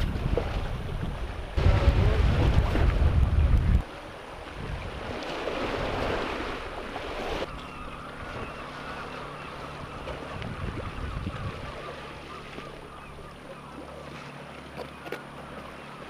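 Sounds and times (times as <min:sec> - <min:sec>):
sea washing against rocks: 0:00.0 - 0:07.5
wind on microphone: 0:00.0 - 0:07.5, 0:10.1 - 0:11.8.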